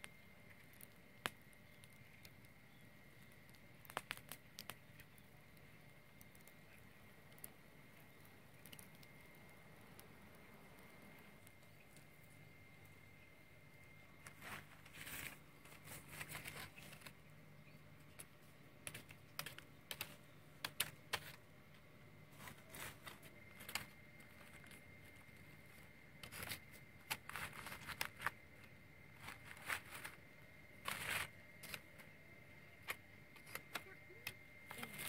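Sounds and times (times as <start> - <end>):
stick scraping burnt crust: 0.0 - 13.0, 13.7 - 21.5, 22.2 - 35.0
leaves rustling: 14.2 - 17.2, 22.3 - 28.4, 29.1 - 30.2, 30.8 - 31.8.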